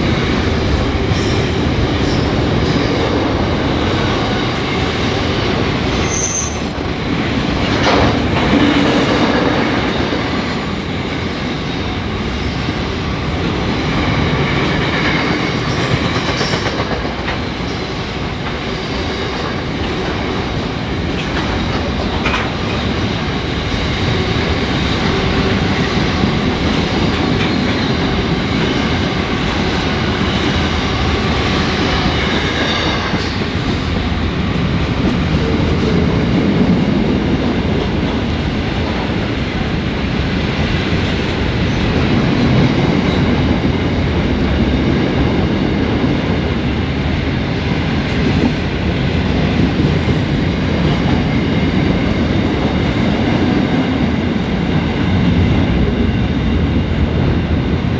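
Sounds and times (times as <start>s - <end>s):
freight train wheels rumbling: 0.0s - 57.9s.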